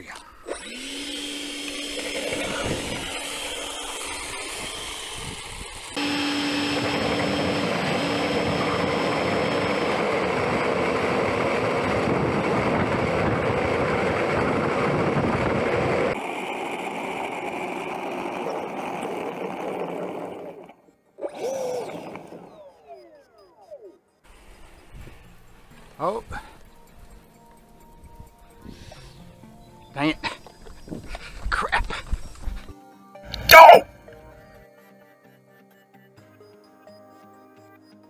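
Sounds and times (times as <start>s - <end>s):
electric ducted fan whining: 0.5s - 27.3s.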